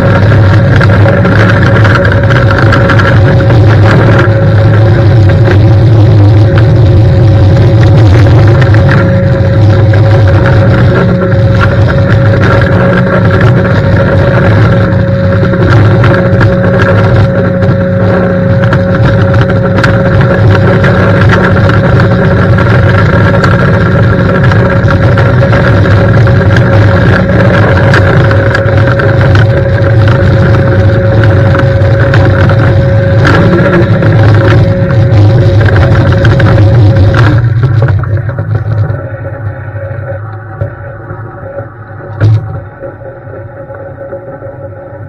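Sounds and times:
low hum with whine: 0.0 - 45.0.

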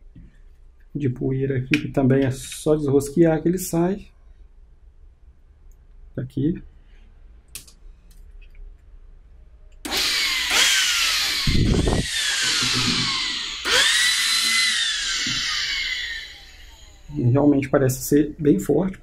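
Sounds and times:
vacuum motor whirring whine: 9.9 - 17.1.

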